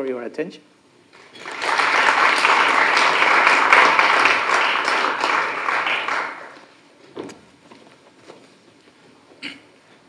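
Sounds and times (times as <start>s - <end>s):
audience applauding: 1.1s - 6.7s.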